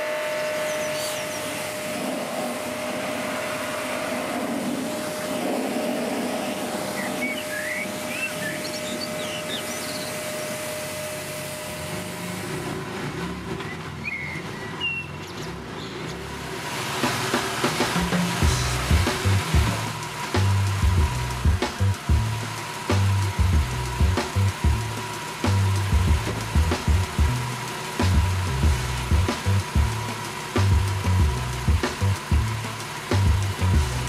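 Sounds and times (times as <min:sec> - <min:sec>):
pressure washer motor hum: 0:00.0 - 0:15.0, 0:16.1 - 0:34.0
water spraying on car: 0:00.1 - 0:15.0, 0:15.6 - 0:34.0
birds chirping: 0:00.4 - 0:11.6, 0:13.5 - 0:16.4.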